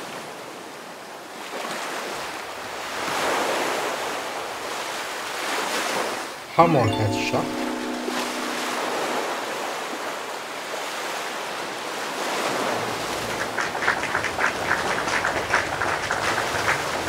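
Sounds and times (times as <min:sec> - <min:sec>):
shallow sea water washing: 0:12.5 - 0:17.0.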